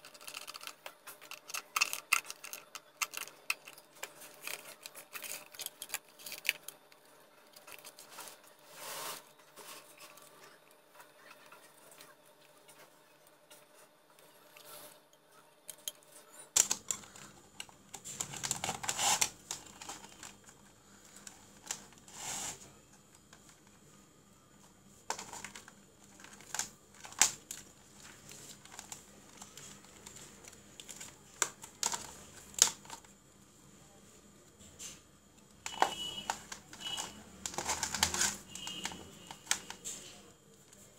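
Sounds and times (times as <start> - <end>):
handling clicks and rustling: 35.6 - 40.9.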